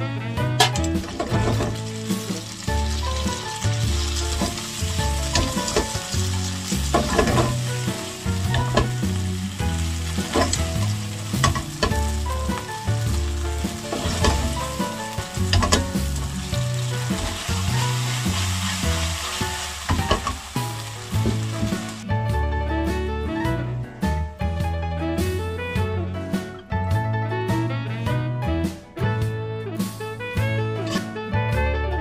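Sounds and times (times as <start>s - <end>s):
oysters sizzling in a pan: 0.7s - 22.1s.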